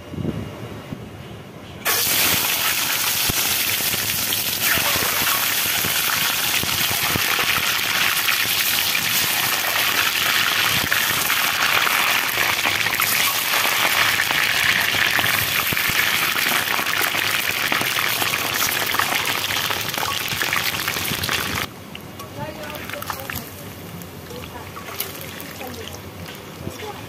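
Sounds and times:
eggs sizzling in hot oil: 1.9 - 21.7.

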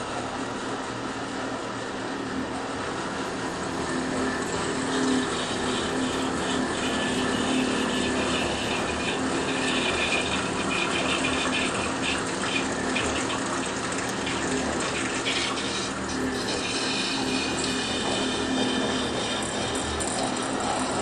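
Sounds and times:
low pump hum: 0.0 - 21.0
water spraying inside glass vessel: 3.6 - 21.0.

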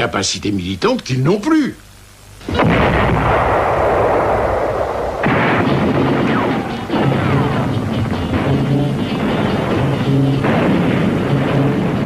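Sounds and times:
artillery blasts: 2.4 - 12.0
gunfire: 2.4 - 12.0.

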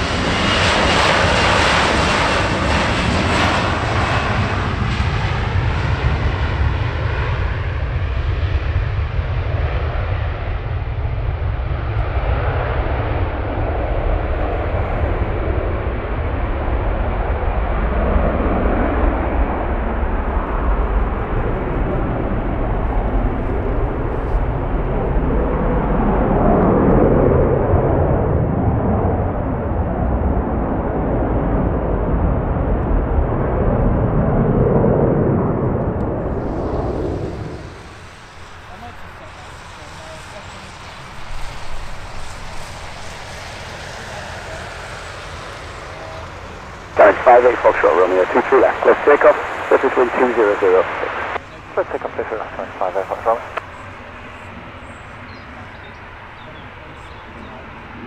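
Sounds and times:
jet engines at takeoff: 0.0 - 58.0.

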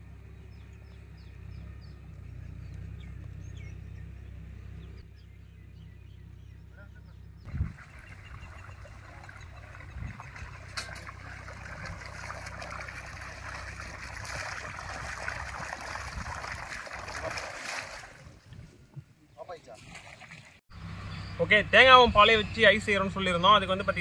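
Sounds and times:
water gushing from pump pipe: 7.5 - 18.2
water splashing into channel: 7.5 - 18.4, 19.7 - 20.6.

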